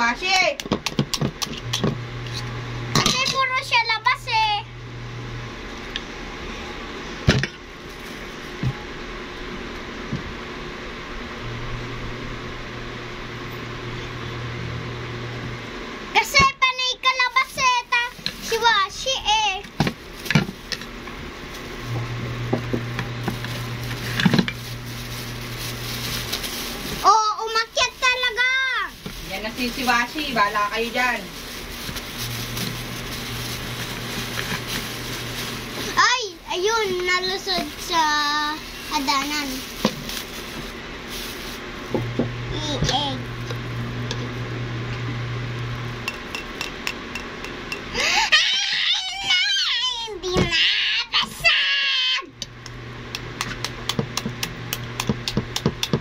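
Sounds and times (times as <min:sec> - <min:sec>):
steady low hum: 0:00.0 - 0:56.0
plastic bag being handled: 0:07.8 - 0:08.8, 0:16.8 - 0:41.9
child squealing laughter: 0:48.0 - 0:49.8.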